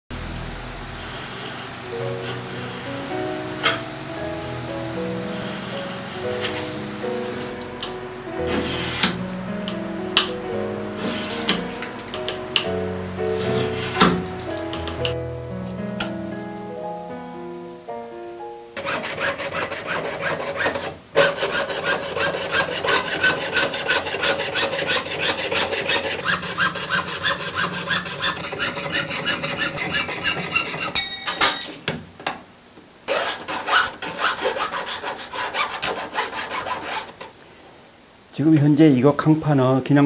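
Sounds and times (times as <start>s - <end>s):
hand tool scraping sheet metal: 8.5s - 9.2s, 11.0s - 12.7s, 13.4s - 14.2s, 18.8s - 31.8s, 33.1s - 37.3s.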